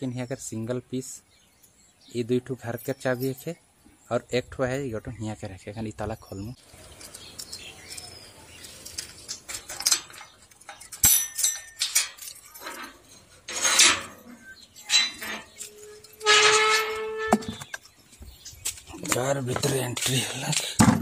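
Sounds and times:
padlock rattling: 6.6 - 16.2
iron gate squealing: 10.9 - 17.6.

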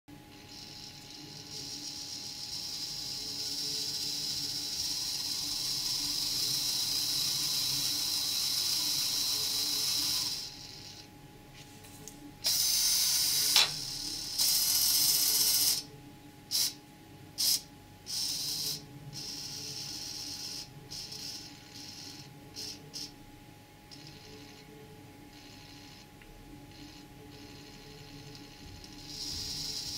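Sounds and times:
small electric motor whirring: 0.3 - 11.1, 12.4 - 15.9, 16.5 - 16.8, 17.4 - 23.1, 26.8 - 29.9.

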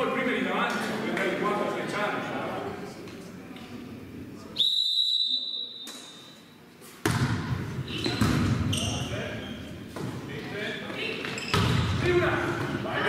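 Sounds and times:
referee's whistle: 4.6 - 6.4
volleyball being struck: 7.0 - 7.6.

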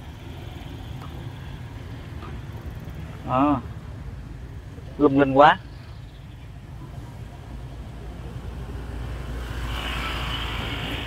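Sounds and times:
vehicle passing close by: 6.9 - 11.0.

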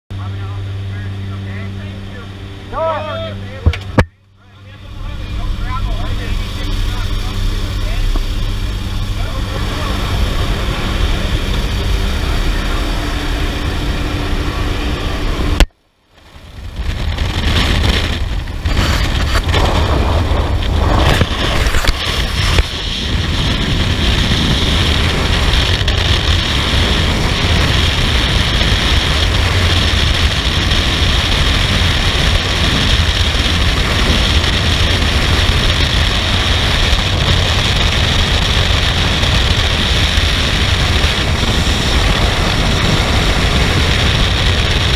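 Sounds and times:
plane engine and propeller drone: 0.1 - 44.9
wind rushing over microphone: 2.4 - 44.9.

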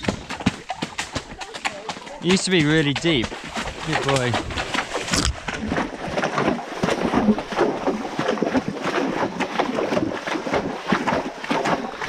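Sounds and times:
horse hooves splashing through water: 0.0 - 12.0.

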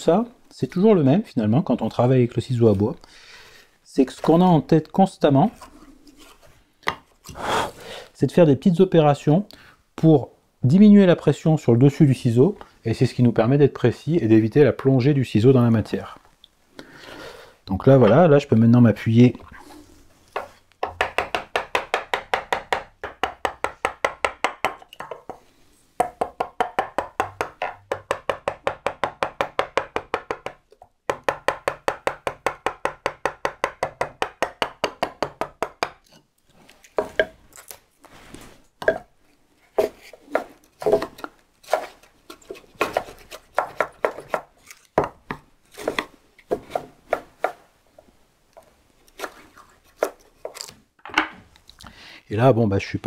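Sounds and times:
chisel tapped into wood: 26.0 - 36.0.

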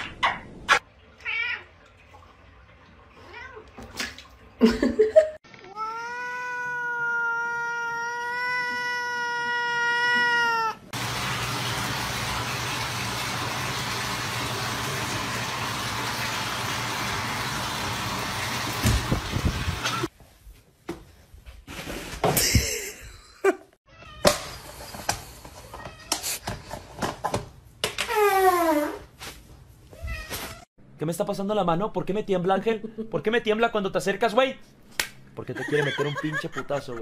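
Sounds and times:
cat meowing long: 5.6 - 10.9.

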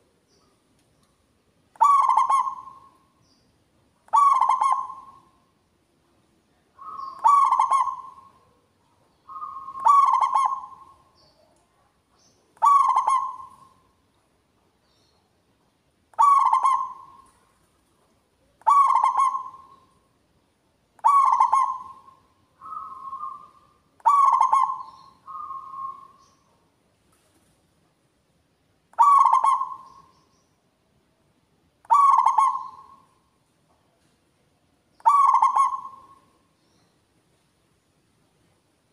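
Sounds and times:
dove cooing: 1.8 - 3.0, 4.1 - 5.4, 6.8 - 8.6, 9.3 - 11.1, 12.6 - 13.8, 16.2 - 17.5, 18.6 - 19.9, 21.0 - 26.2, 29.0 - 30.1, 31.9 - 33.1, 35.0 - 36.3.

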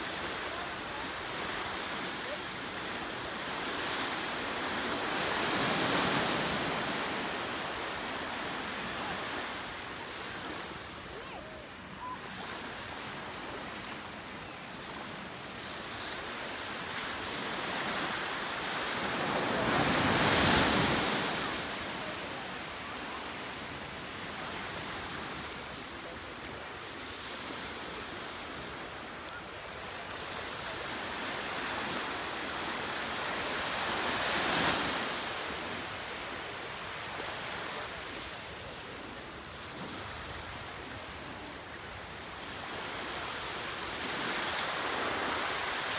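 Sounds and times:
ocean waves breaking: 0.0 - 14.0.

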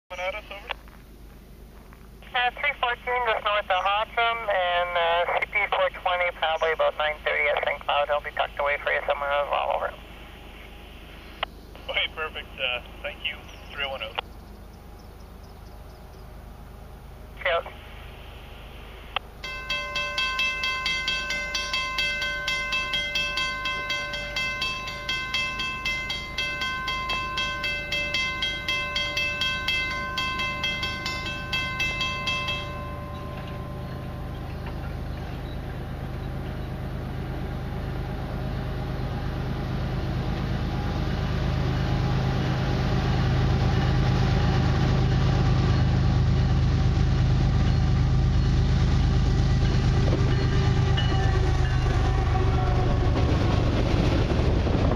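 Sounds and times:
freight train rumble: 0.1 - 54.9
level crossing bell ringing: 19.4 - 36.1.

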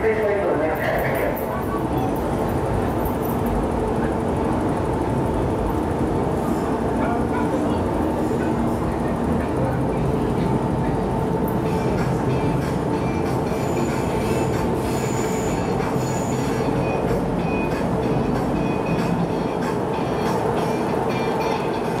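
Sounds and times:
train wheels rumbling on track: 0.0 - 22.0
high wheel squeals: 13.4 - 17.8.

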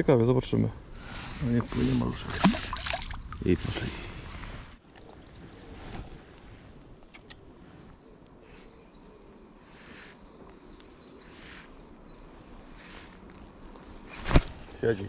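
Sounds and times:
faint outdoor ambience: 0.0 - 15.0.

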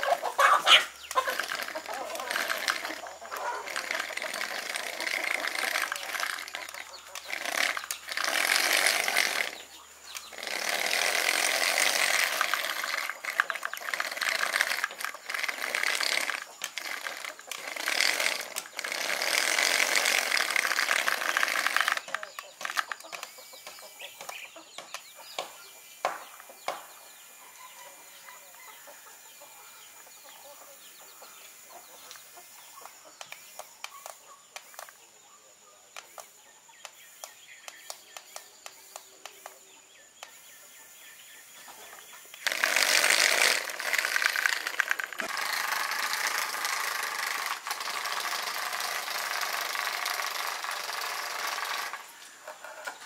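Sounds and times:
distant calls: 0.0 - 35.2
toy car motors whirring: 0.0 - 35.2, 35.9 - 53.0.

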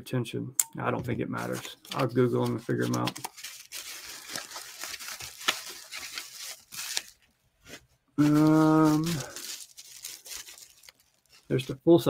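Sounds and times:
bubble wrap crinkling: 1.4 - 12.0.

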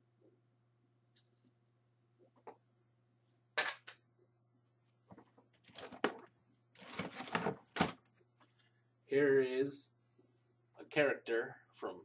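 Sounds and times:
plastic toys clattering: 5.6 - 8.1.

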